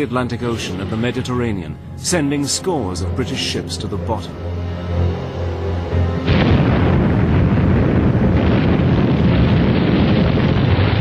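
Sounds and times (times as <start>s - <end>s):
large explosion with rumble: 6.2s - 11.0s.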